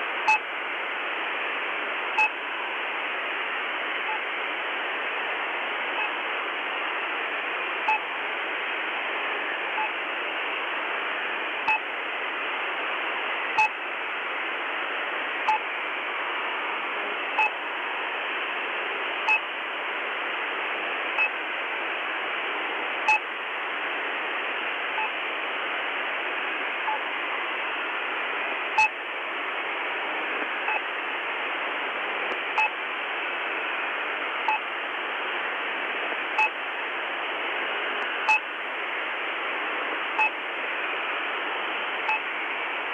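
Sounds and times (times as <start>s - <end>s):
radio static hiss: 0.0s - 42.9s
two-tone radio pips: 0.2s - 0.5s, 2.0s - 2.4s, 11.6s - 12.0s, 13.5s - 13.9s, 15.3s - 15.7s, 17.2s - 18.2s, 20.9s - 21.4s, 22.9s - 23.9s, 24.5s - 25.2s, 26.4s - 42.8s.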